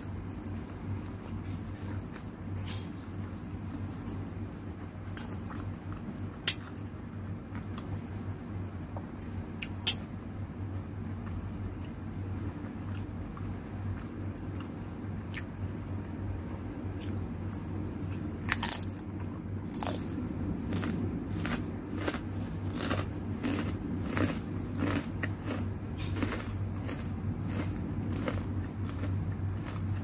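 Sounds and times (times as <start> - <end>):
crunching while chewing: 11.1 - 16.2, 17.9 - 30.0.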